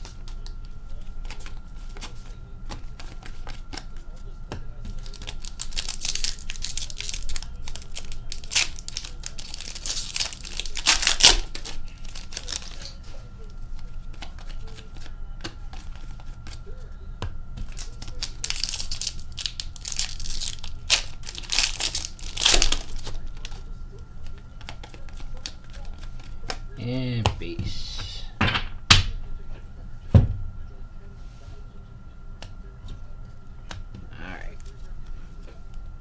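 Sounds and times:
foil wrappers tearing and crinkling: 0:04.9 - 0:13.0, 0:17.6 - 0:23.6.

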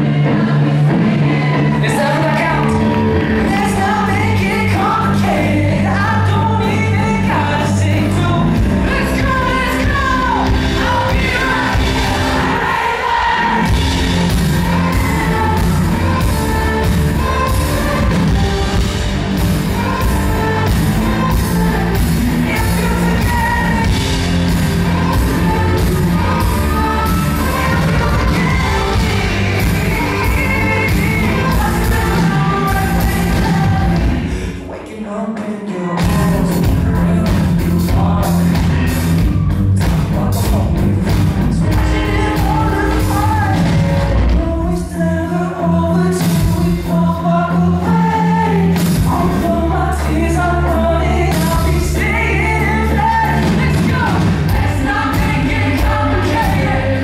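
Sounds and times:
bass guitar: 0:00.0 - 0:34.7, 0:36.0 - 0:57.0
electric guitar: 0:00.0 - 0:35.2
drums: 0:00.0 - 0:57.0
man singing: 0:01.7 - 0:11.8, 0:19.8 - 0:57.0.

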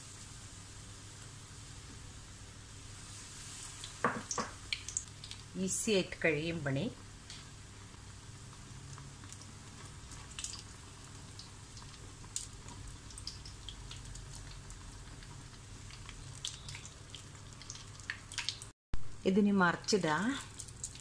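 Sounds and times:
oil popping and crackling: 0:03.6 - 0:05.6, 0:07.2 - 0:18.7, 0:19.8 - 0:21.0.

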